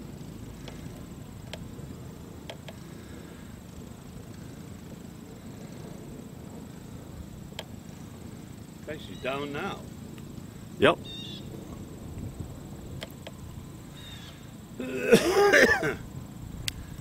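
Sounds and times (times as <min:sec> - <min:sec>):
floatplane engine low rumble: 0:00.0 - 0:17.0
sharp clicks: 0:00.6 - 0:01.7, 0:02.4 - 0:02.8.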